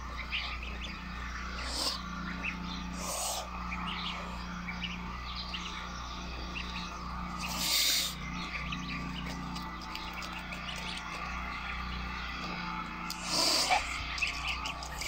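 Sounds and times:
goslings peeping: 0.0s - 15.0s
goose hissing: 1.6s - 2.1s, 2.9s - 3.6s, 7.4s - 8.3s, 13.1s - 15.0s.

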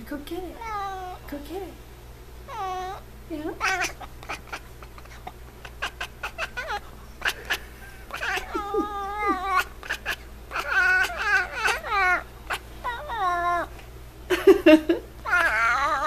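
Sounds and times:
cat trilling chirps: 2.5s - 13.8s, 15.2s - 16.0s
cat chattering clicks: 3.6s - 12.6s.

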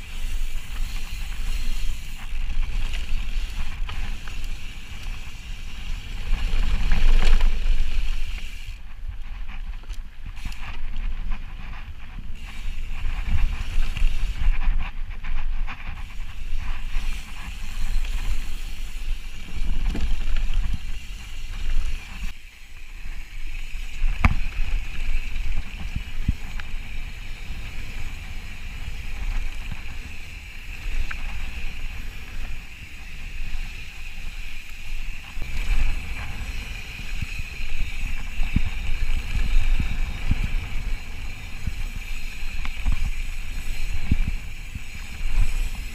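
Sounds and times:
wind buffeting microphone: 35.0s - 45.9s.

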